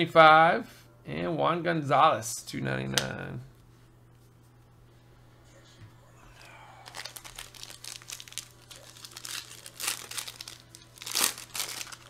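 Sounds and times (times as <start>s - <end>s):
foil wrapper tearing and crinkling: 6.8s - 12.0s.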